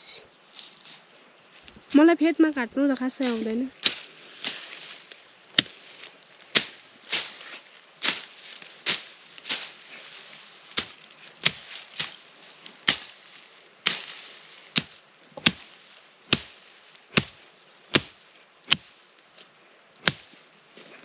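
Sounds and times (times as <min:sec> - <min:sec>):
hand blade chopping brush: 0:03.2 - 0:19.0.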